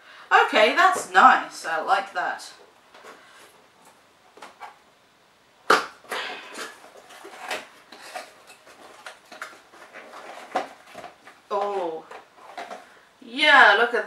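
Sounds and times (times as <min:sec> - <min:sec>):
paper packing rustling: 0:06.0 - 0:13.0.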